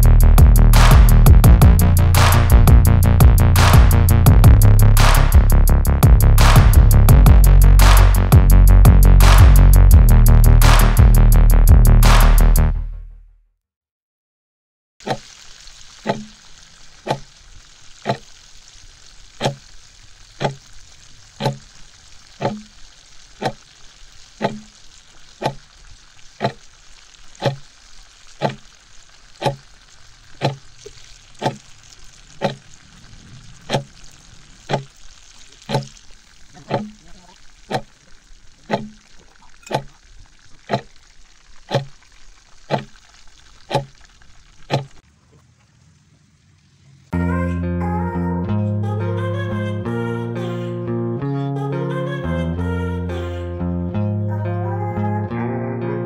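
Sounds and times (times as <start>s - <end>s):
chicken deep-frying in oil: 15.0s - 47.2s
clock ticking: 21.4s - 21.6s, 26.4s - 26.6s, 27.4s - 27.6s, 30.4s - 30.6s, 36.6s - 37.0s, 38.7s - 39.0s, 39.6s - 39.9s, 40.6s - 40.9s, 41.7s - 41.9s.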